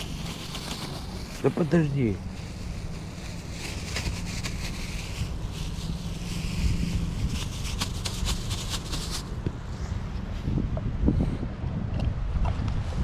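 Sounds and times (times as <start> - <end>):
plastic bag crinkling: 0.0 - 9.4
wind buffeting microphone: 2.2 - 13.0.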